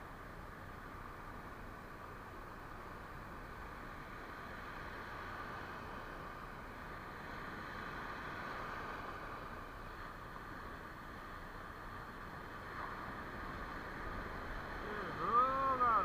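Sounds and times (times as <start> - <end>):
surf rushing on a beach: 0.0 - 16.0.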